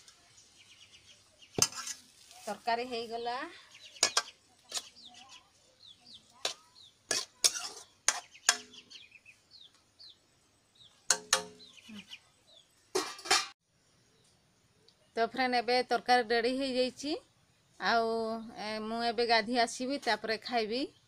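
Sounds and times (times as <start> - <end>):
birds chirping: 0.0 - 2.1, 2.8 - 15.4
metal ladle scraping a steel pot: 1.6 - 2.4, 4.0 - 4.9, 6.4 - 8.8, 13.0 - 13.6.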